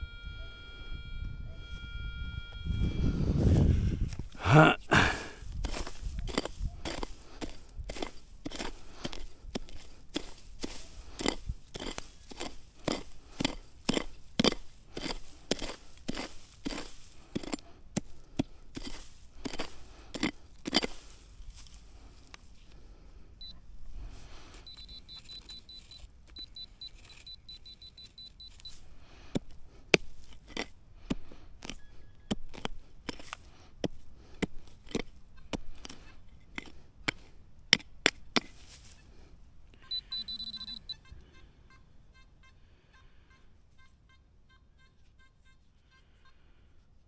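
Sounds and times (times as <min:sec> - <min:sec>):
metal detector beeping: 0:00.0 - 0:04.1, 0:23.4 - 0:23.6, 0:24.5 - 0:28.8, 0:39.8 - 0:41.8.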